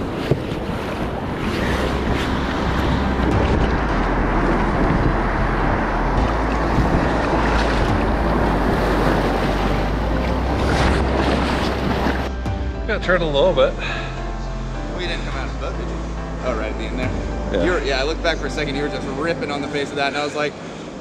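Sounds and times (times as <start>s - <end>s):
wind buffeting microphone: 0.0s - 12.3s
surf rushing and splashing: 0.0s - 12.4s, 17.7s - 21.0s.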